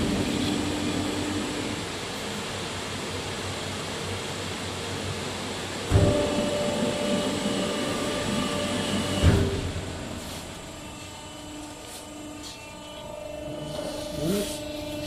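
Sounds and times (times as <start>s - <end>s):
machine hum: 0.0s - 15.0s
mechanical whine: 0.0s - 15.0s
machine clunk: 5.9s - 10.6s.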